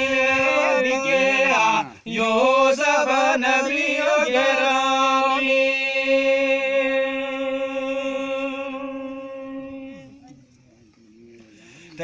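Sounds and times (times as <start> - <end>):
man singing unaccompanied: 0.0 - 10.1.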